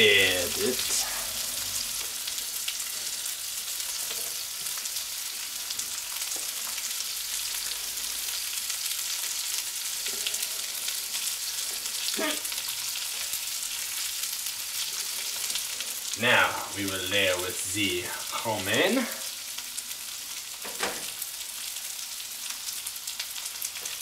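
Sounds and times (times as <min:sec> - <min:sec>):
meat sizzling in a frying pan: 0:00.0 - 0:24.0.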